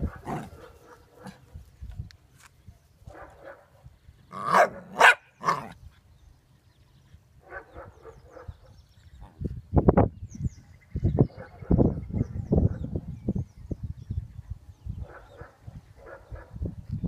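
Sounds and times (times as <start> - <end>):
puppy barking: 4.4 - 5.7.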